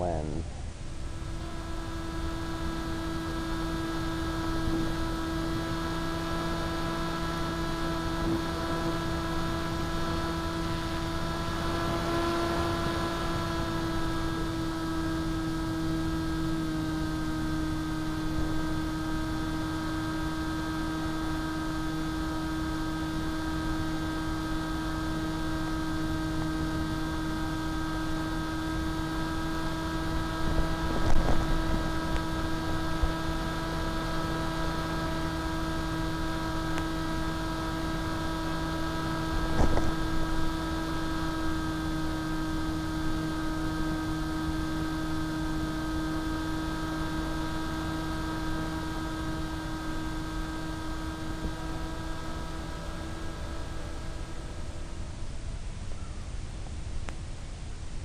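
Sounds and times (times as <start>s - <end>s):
electric motor and propeller hum: 0.0s - 58.0s
wind rushing over microphone: 30.1s - 34.0s, 39.2s - 40.5s.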